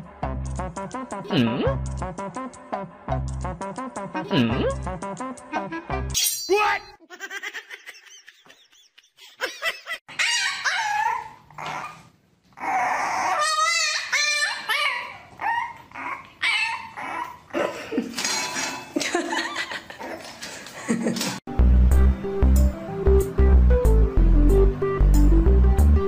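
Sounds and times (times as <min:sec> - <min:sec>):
dog whining and yipping: 0:10.1 - 0:17.5.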